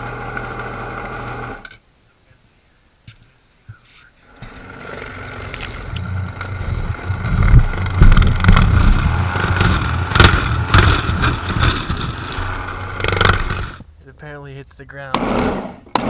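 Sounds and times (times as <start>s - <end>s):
snow shovel motor whine: 0.0s - 1.6s, 4.3s - 13.8s
rotor churning snow: 4.3s - 13.8s
scattered knocks: 6.7s - 12.2s.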